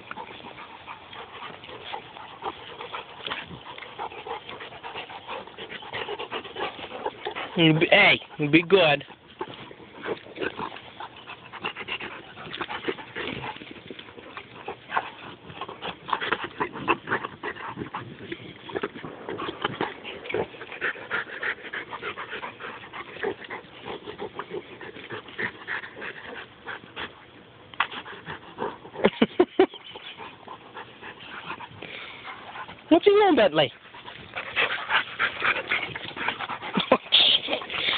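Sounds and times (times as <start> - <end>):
dog breathing: 0.0 - 27.3, 30.2 - 32.9.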